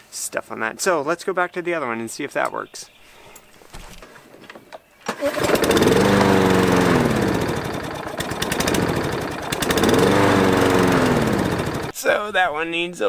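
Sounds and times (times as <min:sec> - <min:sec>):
lawn mower engine surging: 0:05.1 - 0:12.0.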